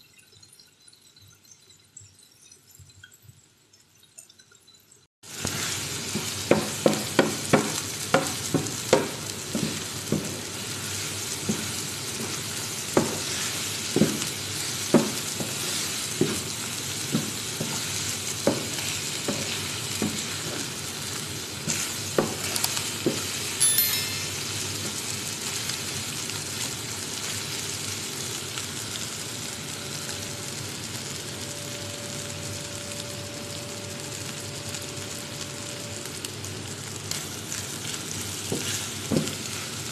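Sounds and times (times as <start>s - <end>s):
food sizzling in frying pan: 5.2s - 39.9s
spatula knocking against pan: 6.5s - 10.3s.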